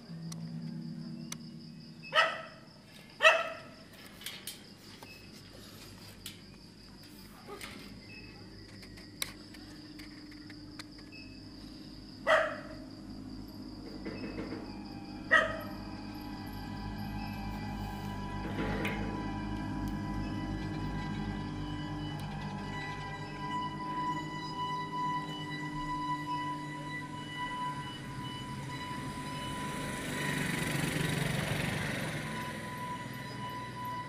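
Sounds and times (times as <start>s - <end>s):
steady high-pitched tone: 0.0s - 4.0s, 4.8s - 34.0s
dog barking: 2.1s - 2.6s, 3.2s - 3.8s, 12.2s - 12.8s, 15.3s - 15.7s.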